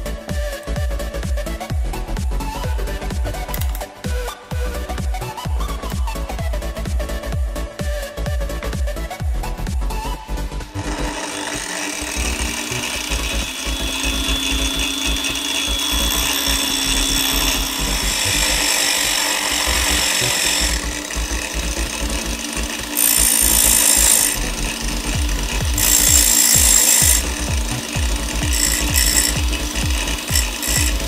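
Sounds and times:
angle grinder motor whine: 0:02.4 - 0:05.4, 0:10.4 - 0:31.0
metal grinding rasping hiss: 0:10.8 - 0:31.0.

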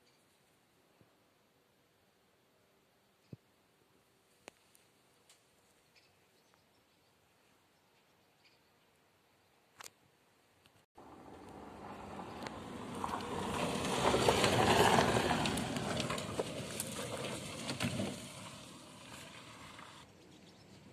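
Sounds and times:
vehicle passing: 0:11.0 - 0:20.1.

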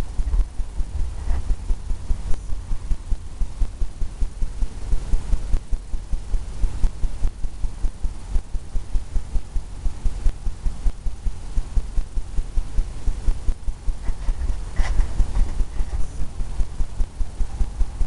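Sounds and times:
brush dabbing on canvas: 0:14.0 - 0:16.8.

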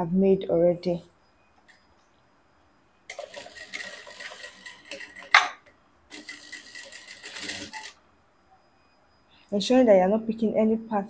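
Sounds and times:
sewing machine clack: 0:03.1 - 0:08.0
sewing machine stitching: 0:03.1 - 0:08.0.

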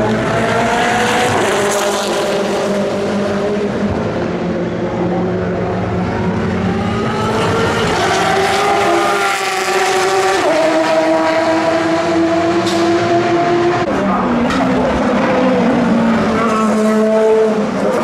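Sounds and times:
race cars passing at speed: 0:00.0 - 0:18.0.

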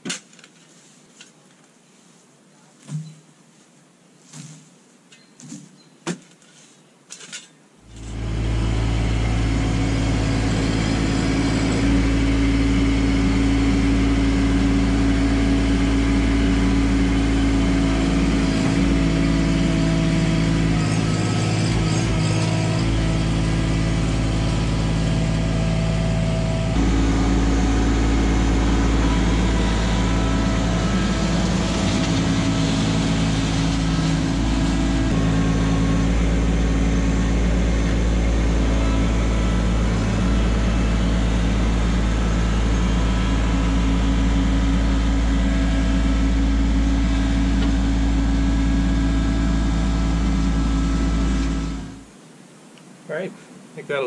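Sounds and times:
tractor diesel engine running: 0:07.9 - 0:52.2.

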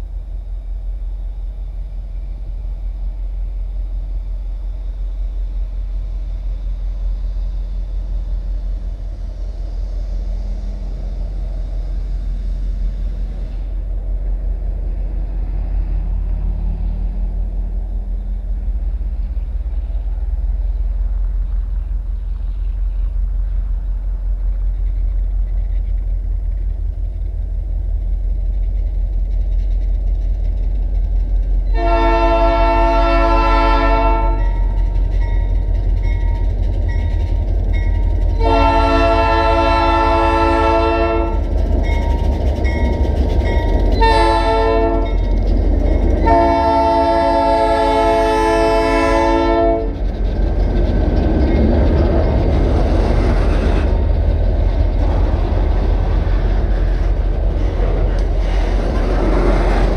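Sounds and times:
locomotive engine rumble: 0:00.0 - 0:59.9
train cars rolling past: 0:00.0 - 0:59.9
locomotive horn blasts: 0:31.7 - 0:34.7, 0:38.4 - 0:41.5, 0:44.0 - 0:45.2, 0:46.2 - 0:50.0.

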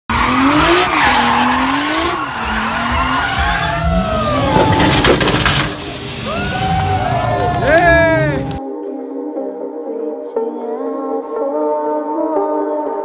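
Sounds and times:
car engine revving: 0:00.1 - 0:08.6
tyres screeching: 0:00.1 - 0:08.6.

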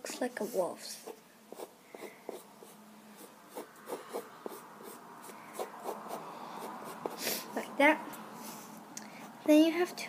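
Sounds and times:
pencil scratching on paper: 0:00.4 - 0:07.5.

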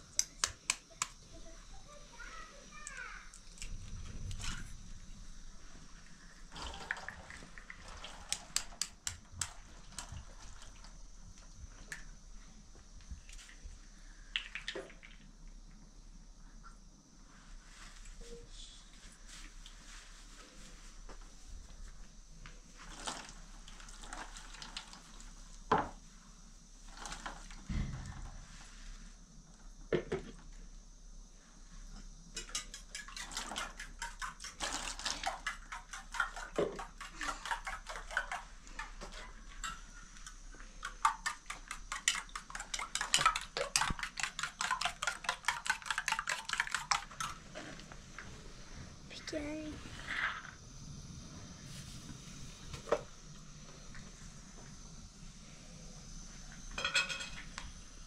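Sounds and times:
water: 0:05.9 - 0:12.2, 0:13.2 - 0:15.6, 0:22.8 - 0:25.9, 0:32.4 - 0:48.3
dishes clinking and knocking: 0:32.4 - 0:40.0, 0:56.7 - 0:57.6.

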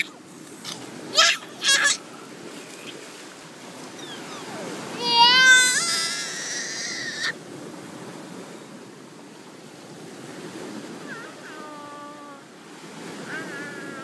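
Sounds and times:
waves washing on rocky shore: 0:00.0 - 0:14.0
young child's voice: 0:01.1 - 0:02.0, 0:04.9 - 0:06.5, 0:11.0 - 0:12.5.

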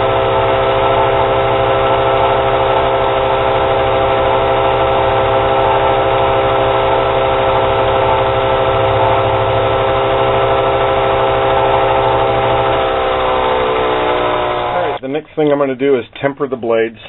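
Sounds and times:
belt grinder humming: 0:00.0 - 0:15.0.

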